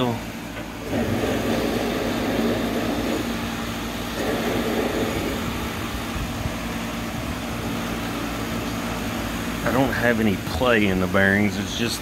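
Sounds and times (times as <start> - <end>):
blower motor humming: 0.0 - 12.0.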